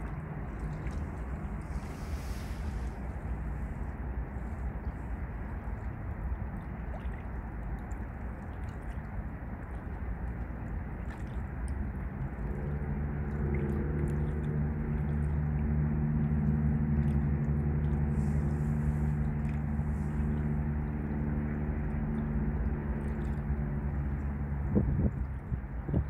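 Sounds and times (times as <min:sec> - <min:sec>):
low rushing noise: 0:00.0 - 0:08.0
engine humming: 0:00.0 - 0:26.0.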